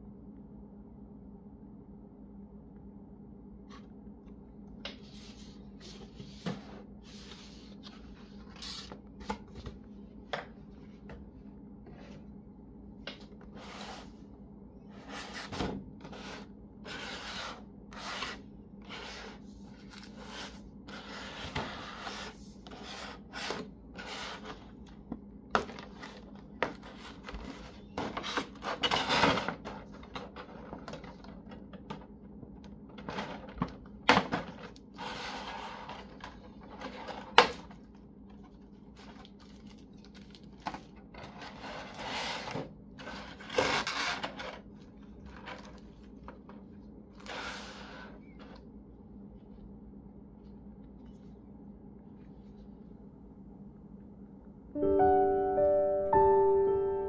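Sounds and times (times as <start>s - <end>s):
plastic packaging crinkling: 38.6s - 41.4s.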